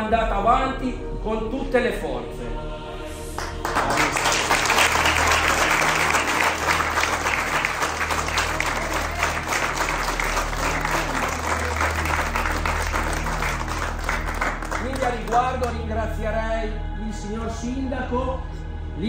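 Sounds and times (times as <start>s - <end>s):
roomful of people applauding: 3.3s - 15.9s.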